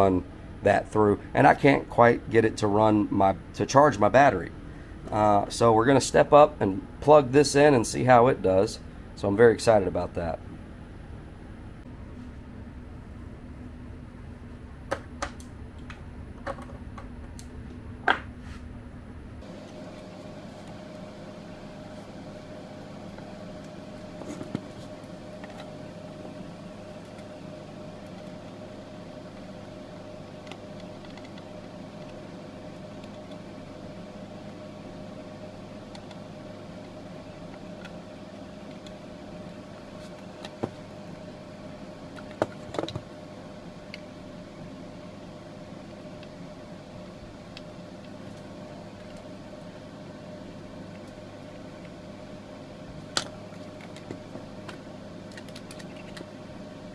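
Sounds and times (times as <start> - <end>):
electrical equipment hum: 0.0 - 56.9
small fan: 0.0 - 56.9
cables and connectors clicking: 30.4 - 32.2, 35.9 - 36.2, 53.1 - 56.3.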